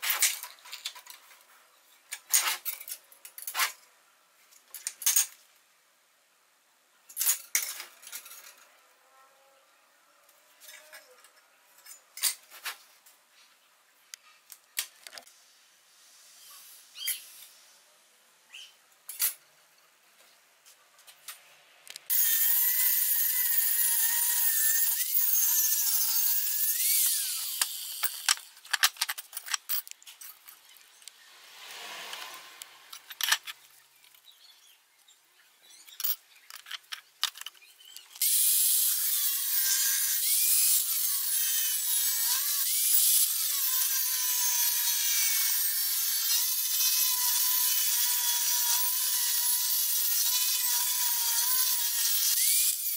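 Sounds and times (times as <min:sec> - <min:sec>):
angle grinder cutting steel: 0:22.1 - 0:28.5, 0:31.3 - 0:33.2, 0:38.2 - 0:52.9
metal pieces clicking and knocking: 0:27.0 - 0:31.1, 0:32.9 - 0:33.6, 0:35.9 - 0:38.3.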